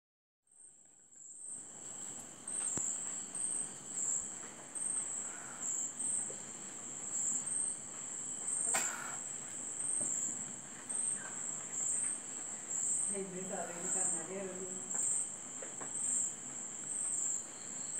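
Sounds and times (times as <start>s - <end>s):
high-pitched insect chirping: 7.0s - 7.8s, 8.4s - 17.9s.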